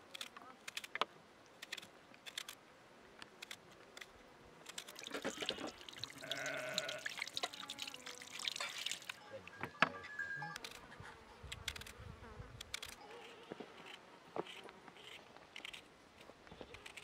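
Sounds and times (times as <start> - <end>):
tap water pouring and splashing: 4.9 - 9.2.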